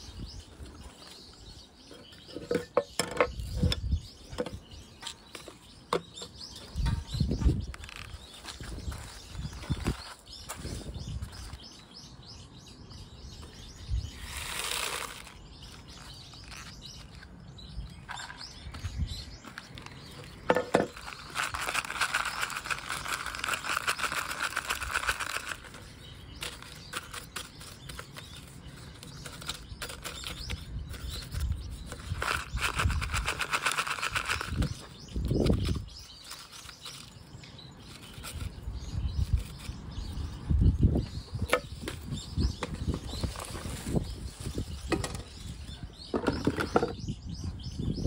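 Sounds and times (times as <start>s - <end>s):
soil rattling and crunching: 14.1s - 17.2s, 18.1s - 38.5s.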